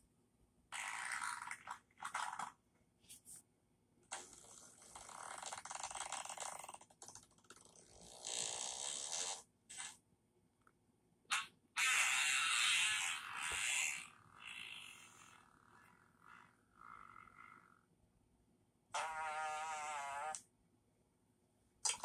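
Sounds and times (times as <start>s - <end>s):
fart noises: 0.7s - 2.6s, 4.1s - 10.0s, 11.3s - 17.8s, 18.9s - 20.5s.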